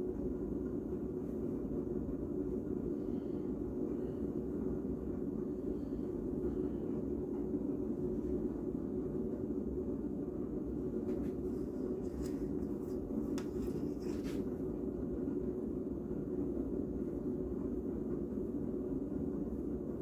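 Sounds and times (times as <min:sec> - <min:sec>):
low background rumble: 0:00.0 - 0:20.0
pencil scratching on paper: 0:11.4 - 0:14.5.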